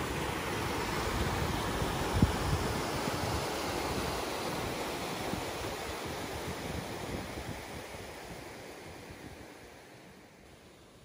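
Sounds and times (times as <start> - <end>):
falling water rushing: 0.0 - 8.1
wind rumbling on microphone: 0.0 - 9.6.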